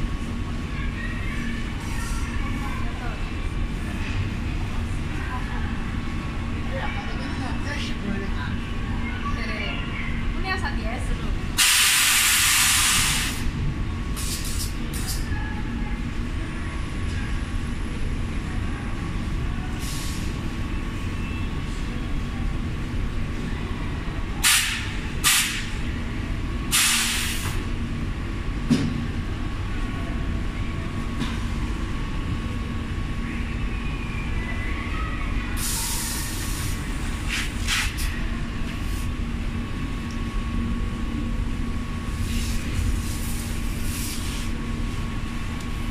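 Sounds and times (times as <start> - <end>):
compressed air hisses: 11.6 - 13.5, 14.2 - 14.8, 26.7 - 27.6, 35.6 - 38.0, 42.2 - 44.6.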